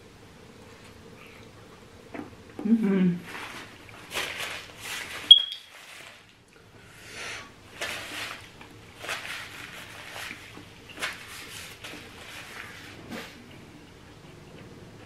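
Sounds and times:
paper napkin crumpling: 0:03.3 - 0:06.3, 0:07.7 - 0:13.3.

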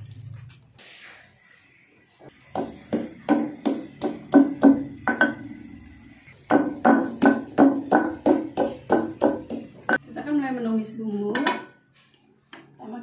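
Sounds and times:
stone pestle pounding in mortar: 0:02.5 - 0:05.4, 0:06.5 - 0:10.0.

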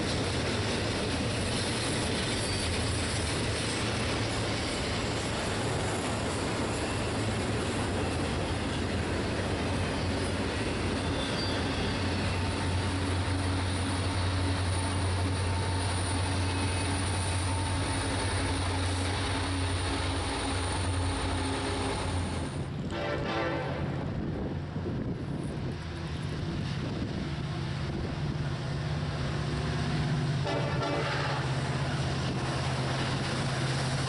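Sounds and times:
diesel locomotive drone: 0:00.0 - 0:34.0
freight train wheels on rails: 0:00.0 - 0:34.0.

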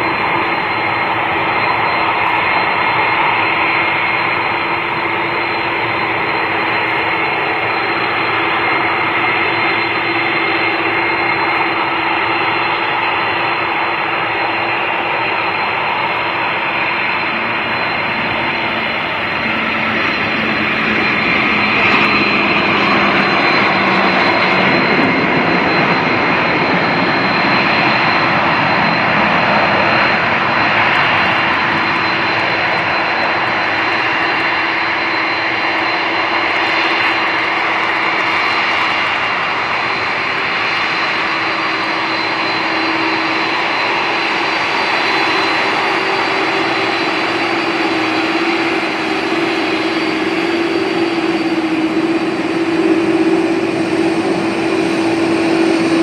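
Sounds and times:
high-pitched engine whine: 0:00.0 - 0:56.0
jet engines roaring: 0:00.0 - 0:56.0.

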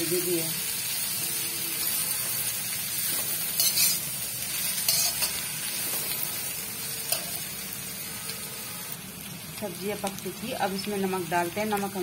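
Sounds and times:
vegetables sizzling in a pan: 0:00.0 - 0:12.0
metal spatula scraping: 0:01.1 - 0:08.6.

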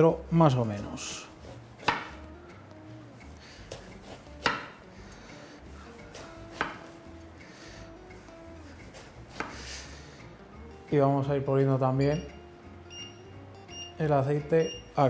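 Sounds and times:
faint background music: 0:00.0 - 0:15.0
knife chopping on wooden board: 0:01.4 - 0:02.3, 0:03.7 - 0:04.8, 0:06.0 - 0:07.0, 0:09.0 - 0:09.7.

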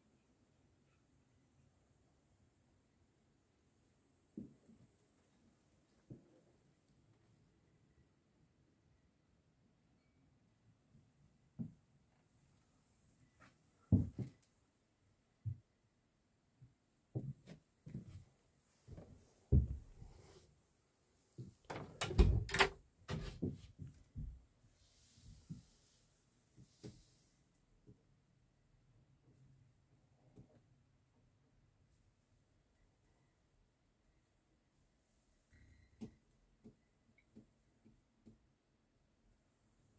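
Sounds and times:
knocks and thumps of movement: 0:13.9 - 0:14.4, 0:17.2 - 0:20.1.

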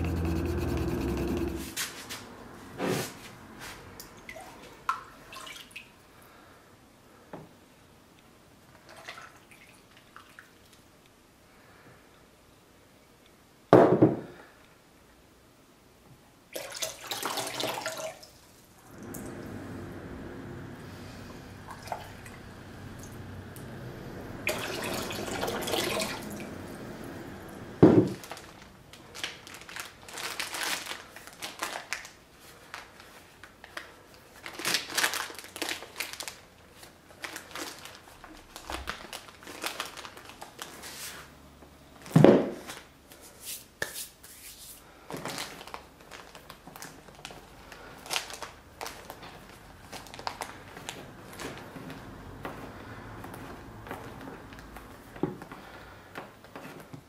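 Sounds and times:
water splashing into plastic tub: 0:16.5 - 0:18.4, 0:24.4 - 0:26.5
plastic bag crinkling: 0:28.0 - 0:41.1, 0:45.1 - 0:51.9.

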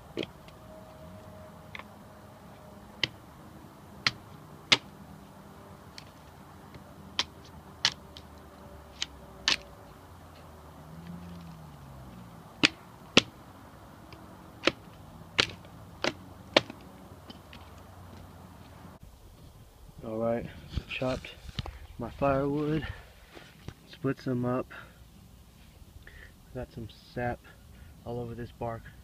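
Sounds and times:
hatchet splitting firewood: 0:03.0 - 0:03.2, 0:04.0 - 0:05.0, 0:05.9 - 0:09.7, 0:12.6 - 0:13.4, 0:14.1 - 0:17.6.

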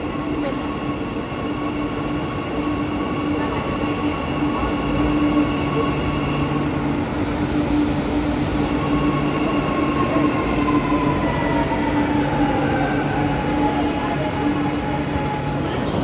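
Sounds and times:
train rumble and hum: 0:00.0 - 0:16.0
hiss: 0:07.1 - 0:09.3.

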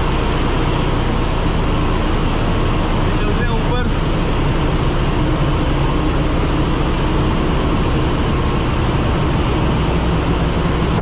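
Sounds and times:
engine room machinery din: 0:00.0 - 0:11.0.

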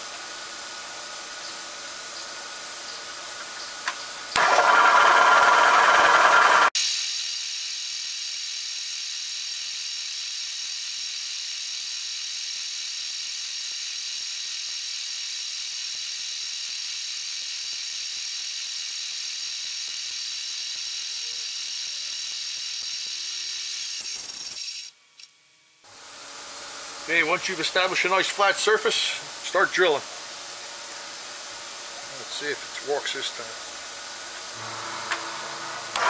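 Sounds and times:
milling machine whining: 0:04.3 - 0:06.7, 0:26.0 - 0:36.0.

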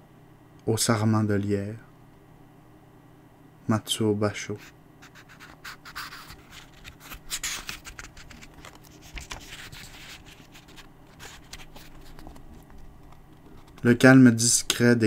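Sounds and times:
faint low hum: 0:00.0 - 0:15.0
book pages rustling: 0:05.0 - 0:14.0.

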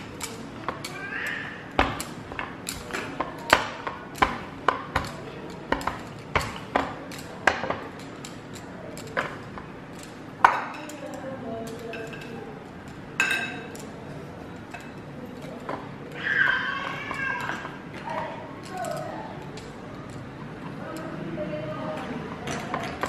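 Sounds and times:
rolling pin rolling dough: 0:00.0 - 0:21.2, 0:22.0 - 0:23.0
rolling pin knocking on wood: 0:01.7 - 0:07.9.

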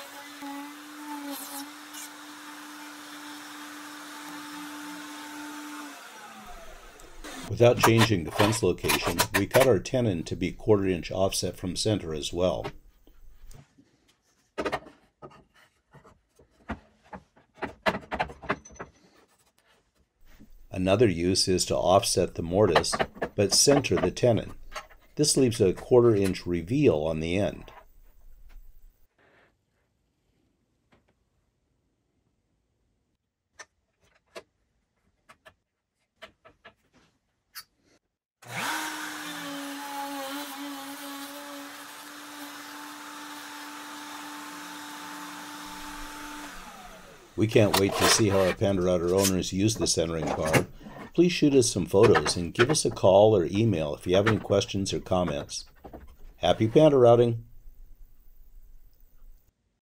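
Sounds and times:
router motor whine: 0:00.0 - 0:07.5, 0:38.4 - 0:47.4
wood rubbing: 0:12.3 - 0:29.5, 0:38.5 - 0:59.4
wood knocks: 0:16.6 - 0:19.0.

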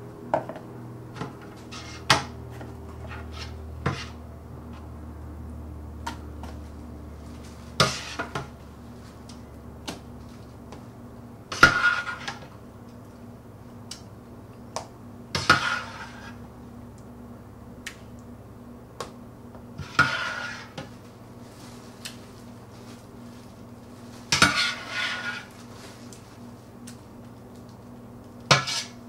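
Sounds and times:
metal spoon scraping steel pot: 0:01.6 - 0:02.1, 0:15.4 - 0:16.4, 0:19.8 - 0:20.8, 0:28.6 - 0:29.0.

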